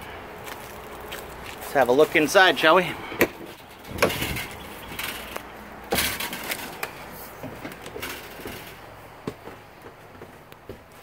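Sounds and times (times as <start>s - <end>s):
footsteps knocking on trailer floor: 9.2s - 11.0s.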